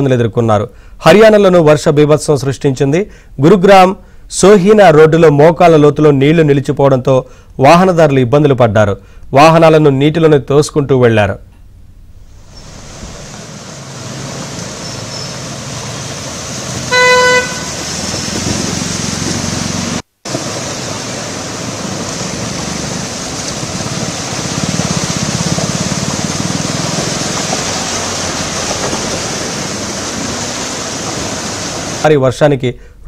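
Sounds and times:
traffic noise: 12.1 - 32.0
water rushing: 12.2 - 32.2
car horn honk: 16.8 - 17.9.

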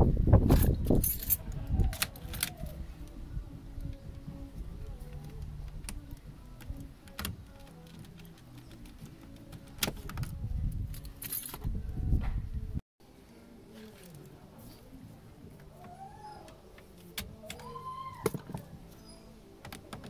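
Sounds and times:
background music with bass line: 0.0 - 12.8
keys jangling: 0.5 - 2.5, 10.9 - 11.6.

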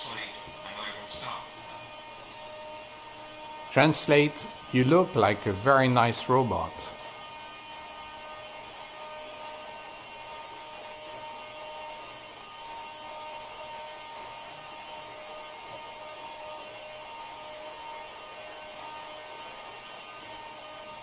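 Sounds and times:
electrical hum: 0.0 - 21.0.

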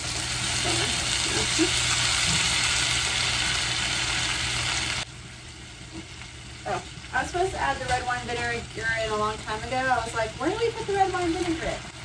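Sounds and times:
food sizzling in a skillet: 0.0 - 12.0.

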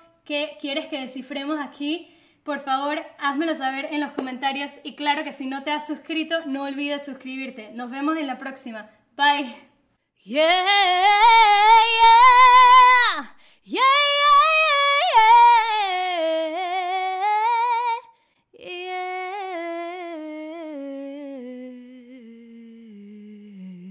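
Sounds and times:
woman singing unaccompanied: 10.2 - 23.9.

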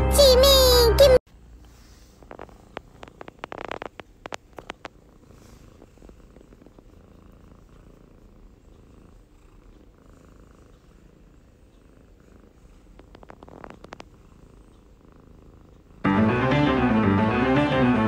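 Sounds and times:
cat purring: 1.7 - 16.1
sharp clicks: 2.7 - 5.0.

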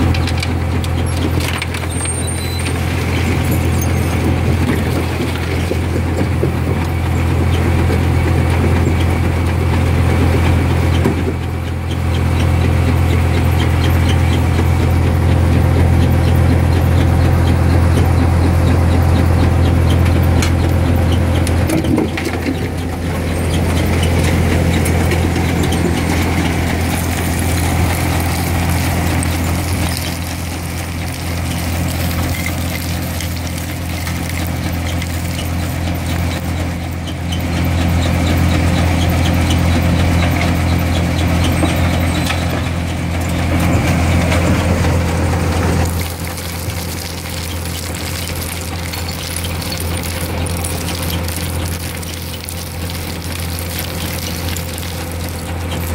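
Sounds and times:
concrete rubble tipping off conveyor: 0.0 - 6.9, 21.4 - 36.5, 45.6 - 55.9
diesel engine humming: 0.0 - 55.9.

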